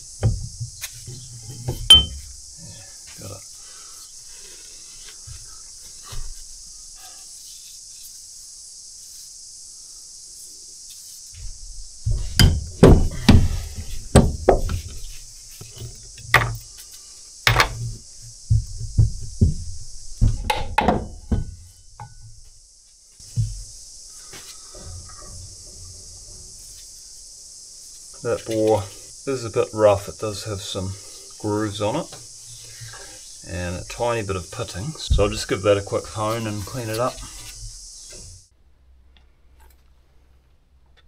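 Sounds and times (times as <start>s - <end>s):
heavy metal knocks and clunks: 11.4s - 16.7s, 17.5s - 22.3s.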